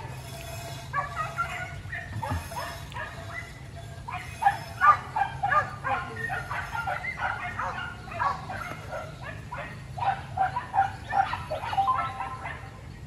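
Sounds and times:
dogs yelping: 0.0 - 12.8.

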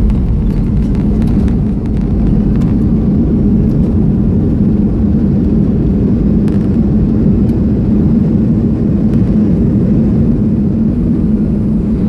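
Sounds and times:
steady cabin hum: 0.0 - 7.4
engines and wheels rumbling: 0.0 - 12.0.

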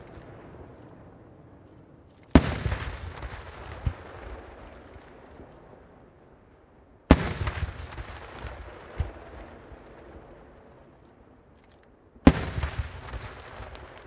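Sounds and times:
firework bangs: 2.3 - 5.8, 7.1 - 10.7, 12.2 - 14.0.

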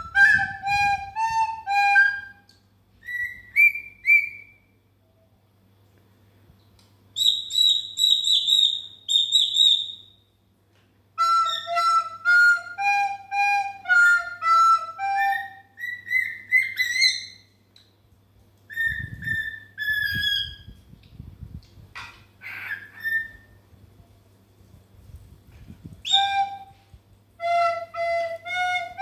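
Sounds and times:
recorder playing a tune: 0.0 - 2.5, 11.2 - 15.7, 27.4 - 29.0
cockatiel chirping: 3.0 - 4.6, 7.2 - 10.2, 15.2 - 17.5, 22.4 - 23.6.

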